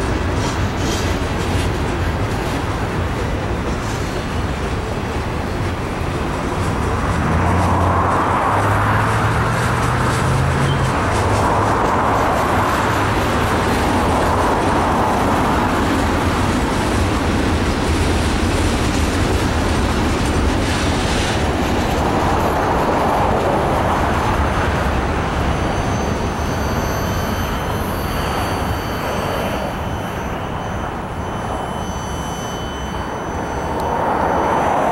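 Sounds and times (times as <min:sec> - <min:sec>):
freight train wheels rumbling: 0:00.0 - 0:34.9.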